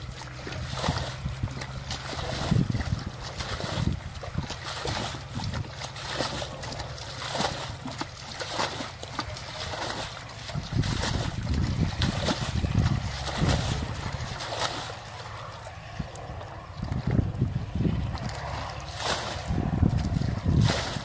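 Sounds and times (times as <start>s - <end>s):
water splashing in a stream: 0.0s - 21.0s
low rumble: 9.2s - 21.0s.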